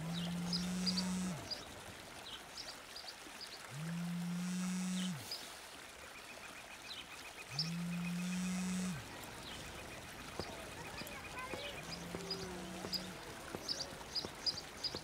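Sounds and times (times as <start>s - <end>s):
faint birdsong chirps: 0.0s - 3.7s, 5.0s - 15.0s
mobile phone vibrating: 0.4s - 1.4s, 3.8s - 5.2s, 7.6s - 9.0s.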